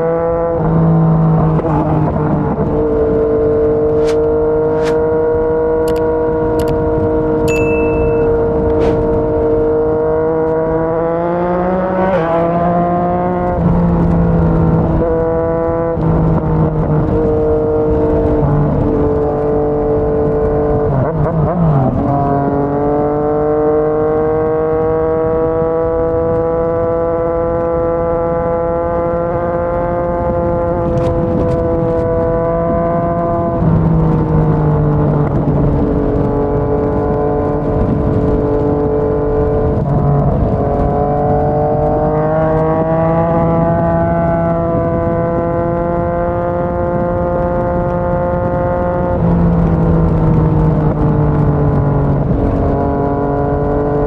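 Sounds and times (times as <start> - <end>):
motorcycle engine cruising: 0.0 - 54.0
wind rushing: 1.6 - 7.2, 8.0 - 10.2.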